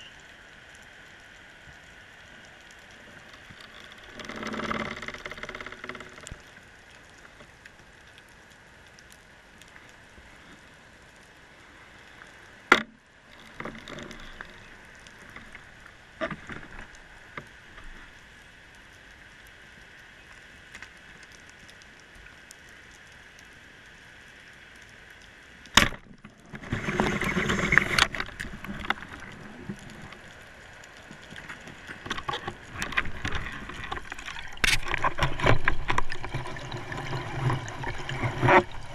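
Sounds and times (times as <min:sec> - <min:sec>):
rustling: 0:26.2 - 0:38.9.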